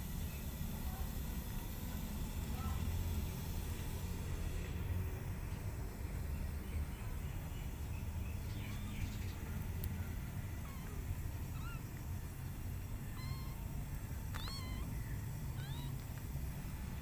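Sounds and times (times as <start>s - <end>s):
kittens mewing: 10.6s - 12.1s, 12.8s - 16.2s.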